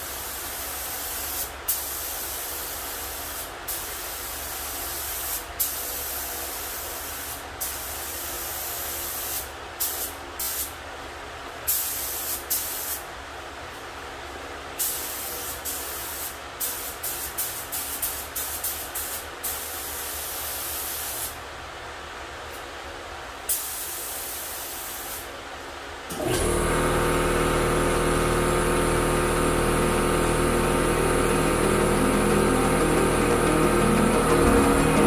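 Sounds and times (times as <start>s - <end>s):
spray gun hissing: 0.0s - 10.7s, 11.7s - 13.0s, 14.8s - 21.4s, 26.6s - 35.0s.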